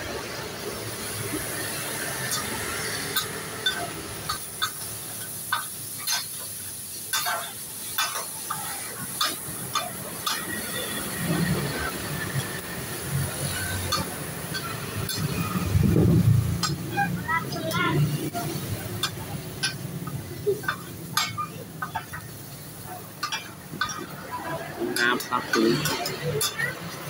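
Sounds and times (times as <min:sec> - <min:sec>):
food sizzling on griddle: 0:00.0 - 0:27.0
metal spatulas clacking and scraping: 0:02.3 - 0:11.1, 0:13.5 - 0:15.8, 0:18.9 - 0:24.2, 0:24.9 - 0:27.0.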